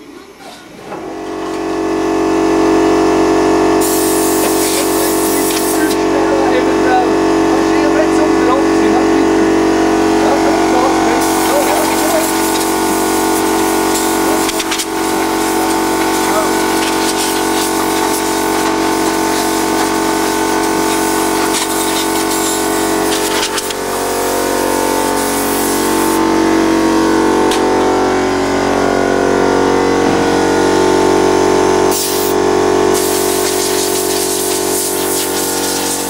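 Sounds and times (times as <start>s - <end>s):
air compressor running: 0.0s - 36.0s
air hissing from blow gun: 3.8s - 6.0s, 11.2s - 26.2s, 31.9s - 36.0s.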